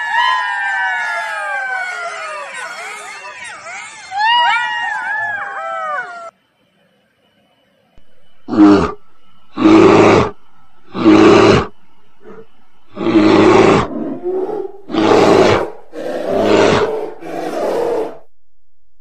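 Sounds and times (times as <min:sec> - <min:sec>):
bear roaring: 0:08.4 - 0:18.3.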